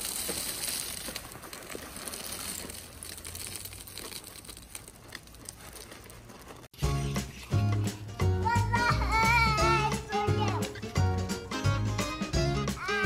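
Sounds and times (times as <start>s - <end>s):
ice cubes clattering into plastic pool: 0.0s - 6.1s.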